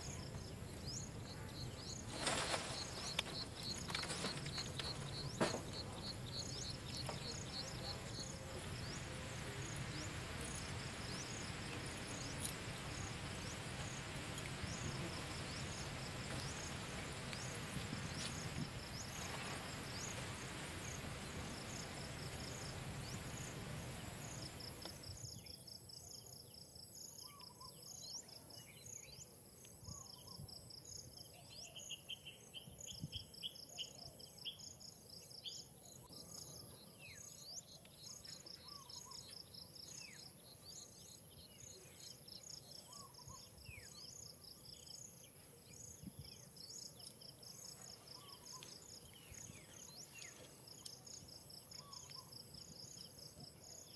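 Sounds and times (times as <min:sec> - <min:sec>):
steady hiss: 0:00.0 - 0:25.4
insects trilling: 0:00.0 - 0:26.4, 0:27.0 - 0:53.9.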